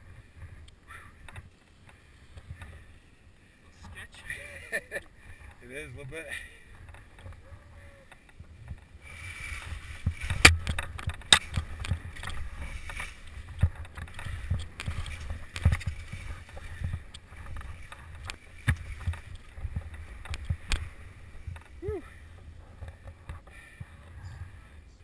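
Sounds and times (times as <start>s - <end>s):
knocks and clatters of ski poles: 0.4s - 2.9s, 4.7s - 24.2s
wind rumble on microphone: 5.3s - 25.0s
skis scraping over snow: 8.5s - 24.1s.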